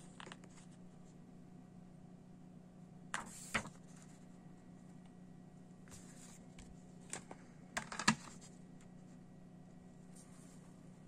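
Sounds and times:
paper booklet rustling: 3.2 - 4.2.

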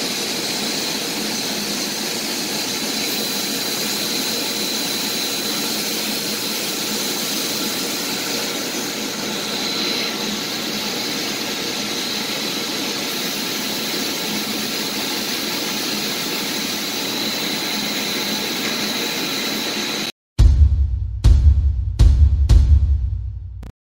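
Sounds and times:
high-pitched whine: 0.0 - 20.1
machinery running: 0.0 - 20.1
music: 20.4 - 23.7.

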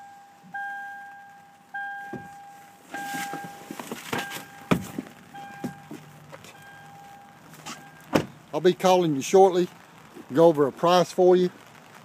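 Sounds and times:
car warning chime dinging: 0.0 - 8.2
knocks and handling thumps: 3.0 - 6.6.

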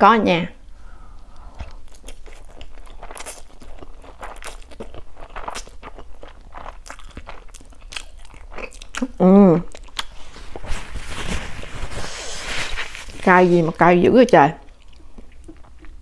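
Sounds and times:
noodles being slurped and chewed: 1.4 - 13.6.

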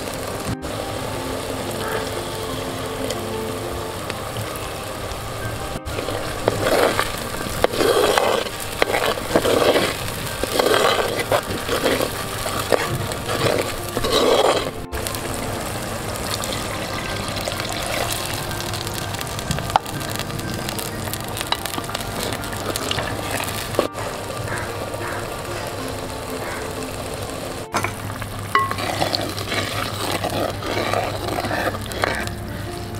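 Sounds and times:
soft background music: 0.0 - 32.9
spoon scraping thick paste in pot: 5.9 - 14.9, 28.6 - 32.9.

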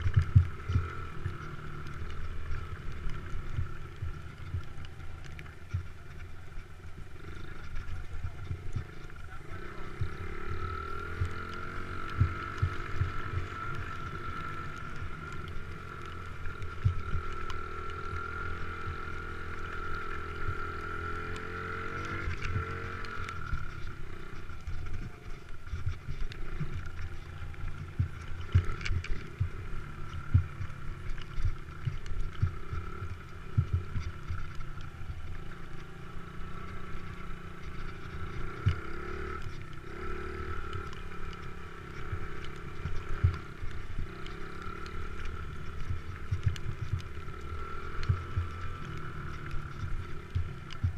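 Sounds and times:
motocross bike engine revving: 0.0 - 50.9.

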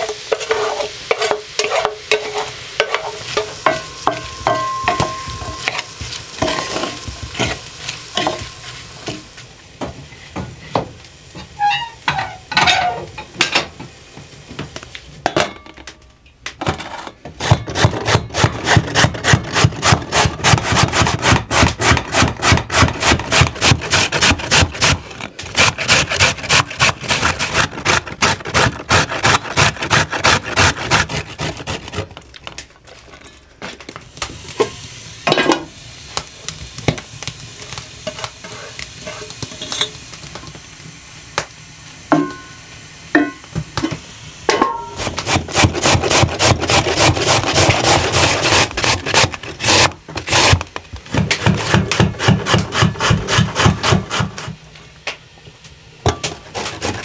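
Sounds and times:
food grating on grater: 0.0 - 2.5, 16.9 - 32.1, 45.0 - 50.7, 51.4 - 54.6, 56.4 - 57.0.

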